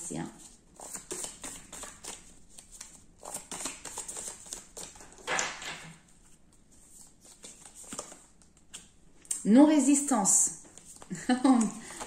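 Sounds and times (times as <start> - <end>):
cards swishing: 0.8 - 5.0, 6.8 - 8.9
cards tapping and rustling: 0.8 - 9.0, 10.6 - 12.0.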